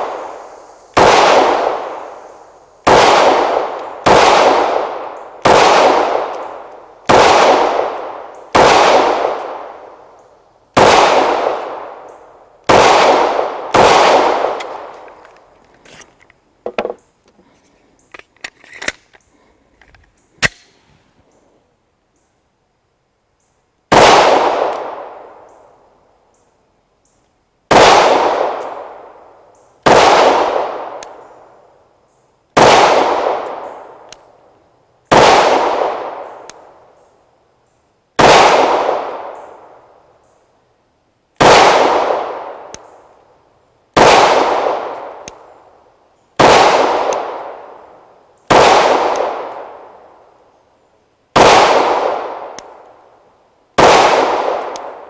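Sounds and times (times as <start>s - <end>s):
pistol shots: 1.0s - 2.0s, 2.8s - 9.9s, 10.8s - 12.0s, 12.6s - 14.9s, 23.9s - 25.2s, 27.7s - 29.0s, 29.8s - 31.2s, 32.6s - 33.7s, 35.1s - 36.3s, 38.2s - 39.4s, 41.4s - 43.0s, 44.0s - 45.4s, 46.4s - 47.7s, 48.5s - 49.8s, 51.4s - 52.8s, 53.8s - 55.0s.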